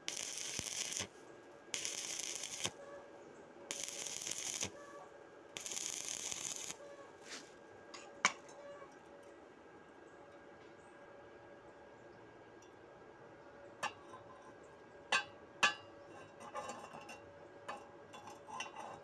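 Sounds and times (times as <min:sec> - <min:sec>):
welding arc crackling: 0:00.0 - 0:01.1, 0:01.7 - 0:02.8, 0:03.7 - 0:04.8, 0:05.6 - 0:06.8.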